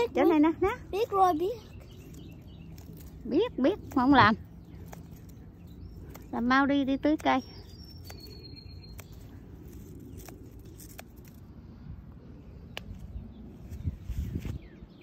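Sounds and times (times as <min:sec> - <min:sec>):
bird chirping: 0:00.0 - 0:11.4
scissors snipping twigs: 0:00.0 - 0:11.5, 0:12.5 - 0:13.3
leaves and branches rustling: 0:00.0 - 0:15.0.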